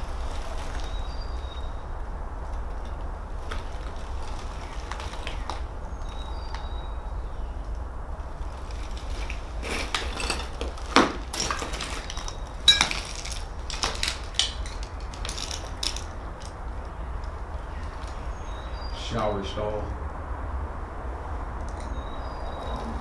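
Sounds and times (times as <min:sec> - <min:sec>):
footsteps crunching on debris: 0:02.9 - 0:06.7, 0:08.2 - 0:18.2.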